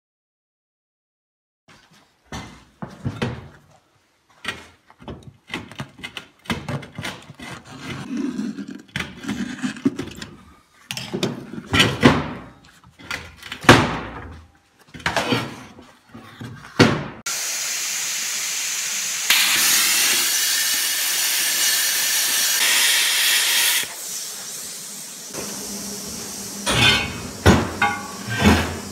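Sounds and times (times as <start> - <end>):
plasma cutter hissing: 17.3 - 28.9.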